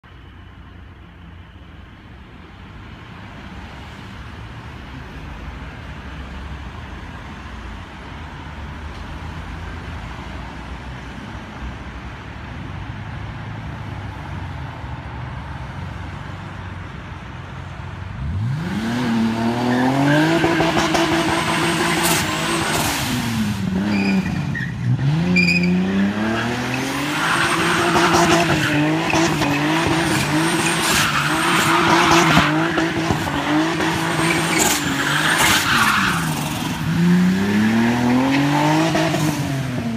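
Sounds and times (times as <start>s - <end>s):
car engine rumbling and revving: 18.0s - 39.9s
tyres squealing and skidding: 19.2s - 39.9s.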